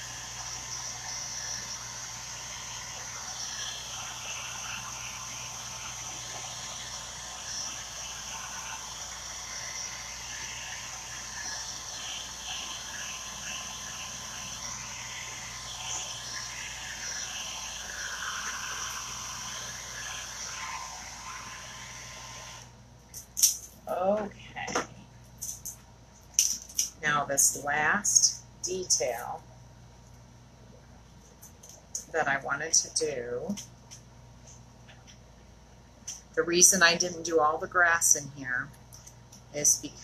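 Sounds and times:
hair dryer running: 0.0 - 22.7.

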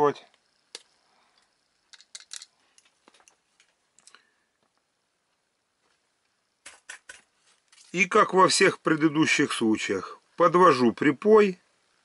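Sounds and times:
tools clicking and tapping on wood: 1.9 - 4.2.

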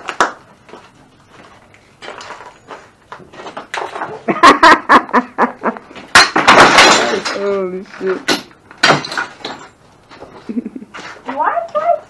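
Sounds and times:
hand tools smashing junk: 6.0 - 9.8.

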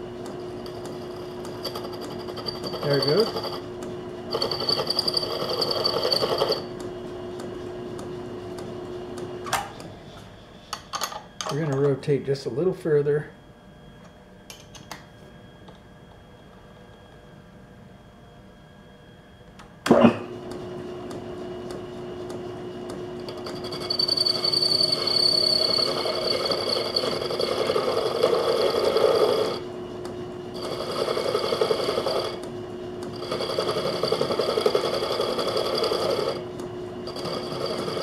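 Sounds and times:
lathe spindle humming: 0.0 - 11.6, 20.6 - 38.0.

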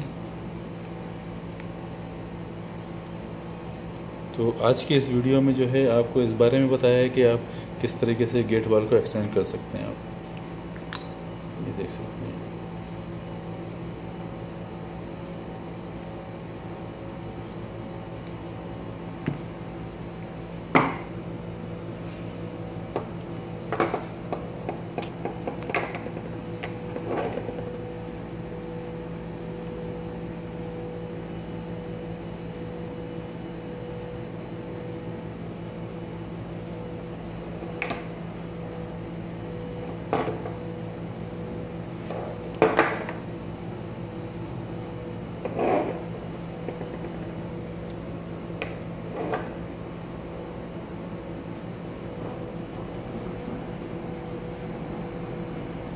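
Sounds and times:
steady background hum: 0.0 - 55.9.

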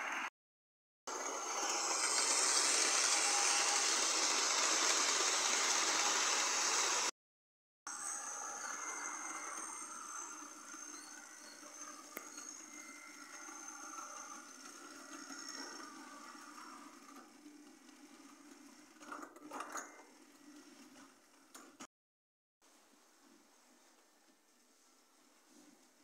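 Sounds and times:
model train motor whirr and whine: 1.1 - 7.1, 7.9 - 21.8.

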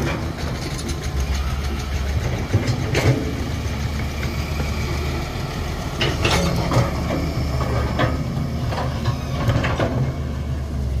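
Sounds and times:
heavy diesel engine running: 0.0 - 11.0
sharp clunks and scrapes: 6.0 - 10.2.

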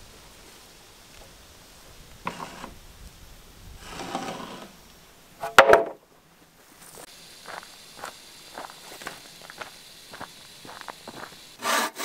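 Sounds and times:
sharp wooden clack: 5.4 - 6.0
wooden boards knocking and scraping: 5.4 - 6.0.

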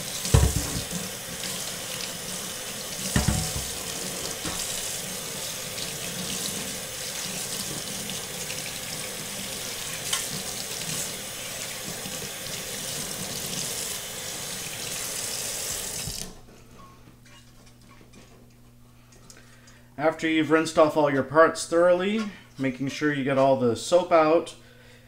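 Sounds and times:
faucet water splashing in sink: 0.0 - 16.3.

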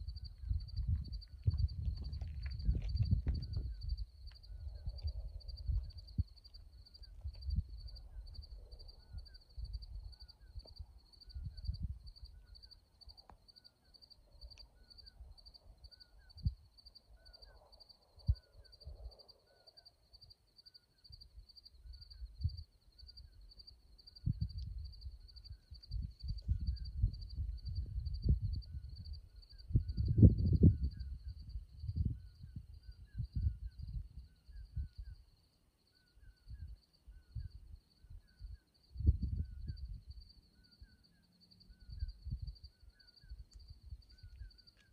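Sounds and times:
wind buffeting microphone: 0.0 - 12.4, 24.1 - 35.2, 36.5 - 40.3, 41.8 - 44.5
cricket chirping: 0.0 - 44.9.

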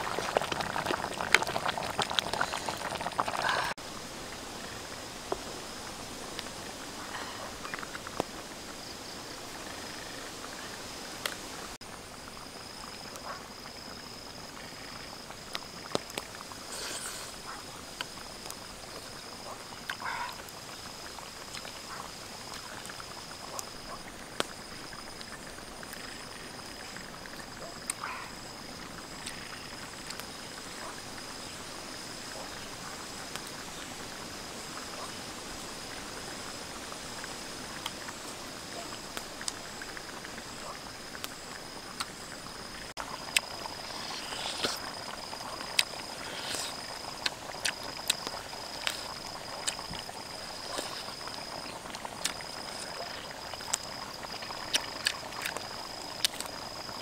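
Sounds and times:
eating from a bowl: 0.0 - 3.8, 43.0 - 56.9
low hiss: 0.0 - 57.0.

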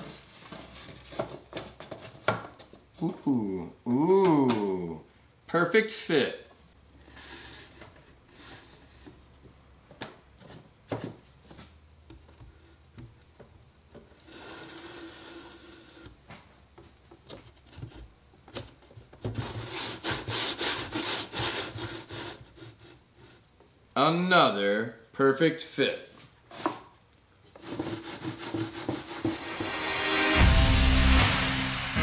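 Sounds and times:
plywood scraping against wood: 0.0 - 2.8, 7.0 - 9.5, 10.4 - 16.3, 17.1 - 23.8, 27.5 - 29.8.

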